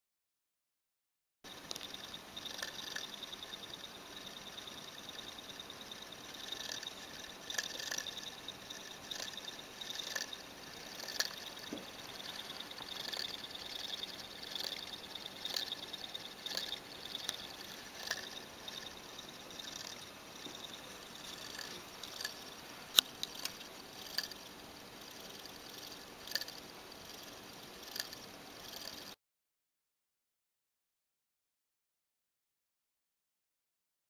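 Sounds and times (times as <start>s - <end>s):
motor clicks: 16.4s - 18.9s.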